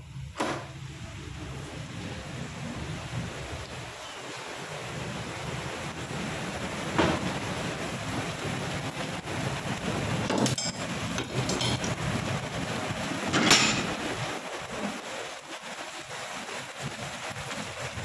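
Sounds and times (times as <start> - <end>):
heavy rain pouring: 0.1 - 18.0
knocks: 6.9 - 7.4.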